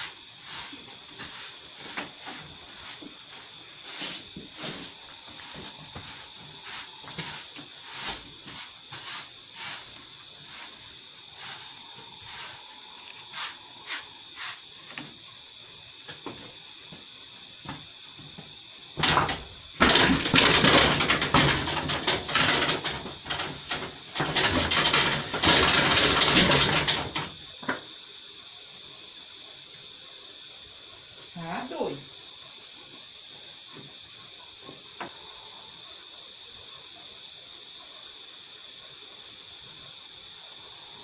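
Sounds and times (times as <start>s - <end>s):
pony rustling and knocking on stall: 0.0s - 12.6s, 19.0s - 27.4s
crickets trilling: 0.0s - 41.0s.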